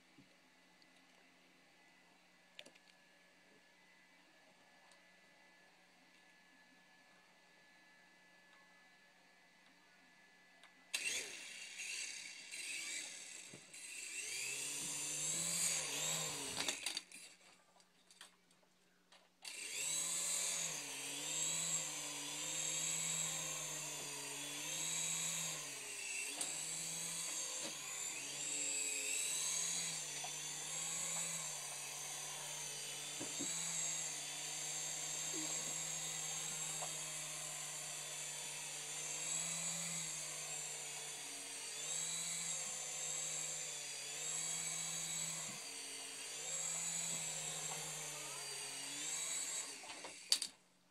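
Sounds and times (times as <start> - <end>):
toy helicopter rotor whining: 10.4 - 17.5, 19.4 - 50.6.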